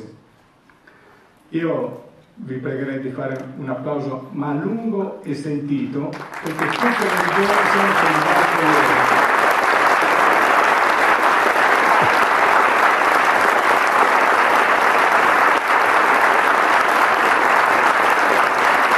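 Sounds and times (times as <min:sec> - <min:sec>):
audience applauding: 0:06.2 - 0:18.9.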